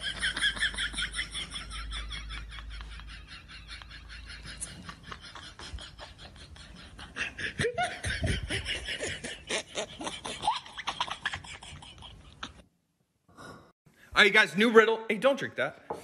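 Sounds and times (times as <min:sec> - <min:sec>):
people laughing: 0:00.0 - 0:12.6.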